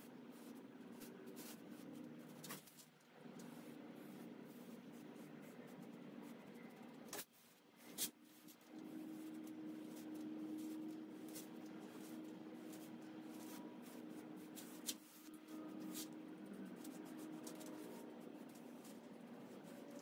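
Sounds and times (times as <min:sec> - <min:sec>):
steady low hum: 0:00.0 - 0:20.0
foam brush strokes on wood: 0:07.4 - 0:16.1.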